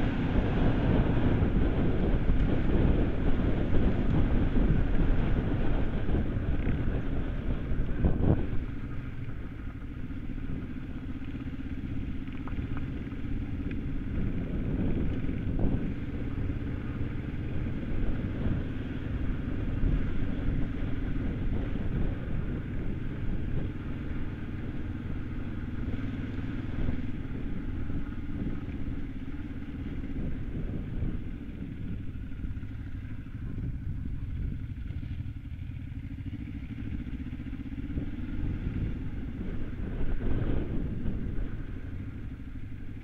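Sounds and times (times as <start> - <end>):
motorcycle engine running: 0.0 - 43.0.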